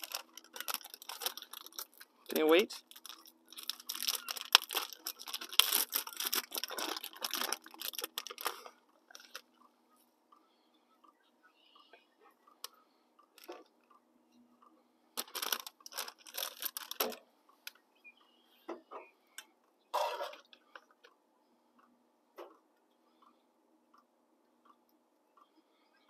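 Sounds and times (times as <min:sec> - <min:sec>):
items clattering: 0:00.0 - 0:09.4, 0:19.9 - 0:20.5
plastic bag crinkling: 0:00.0 - 0:09.4, 0:15.2 - 0:17.2.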